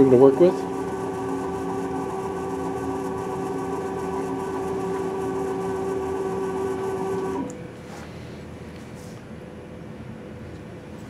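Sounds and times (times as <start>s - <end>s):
testing machine motor hum: 0.0s - 7.8s.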